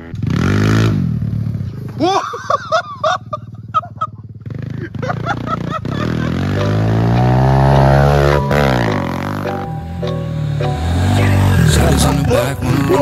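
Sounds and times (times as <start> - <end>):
dirt bike engine accelerating: 0.0 - 13.0.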